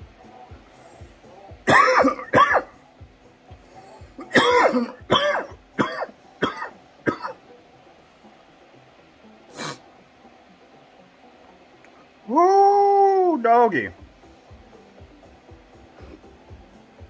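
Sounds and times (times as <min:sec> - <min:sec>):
man coughing hard: 0:01.7 - 0:02.7, 0:04.2 - 0:07.4.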